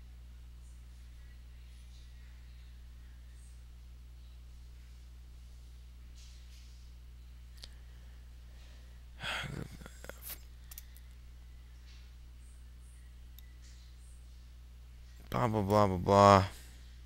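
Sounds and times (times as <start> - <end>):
electrical hum: 0.0 - 17.0
sharp clicks: 10.7 - 11.0.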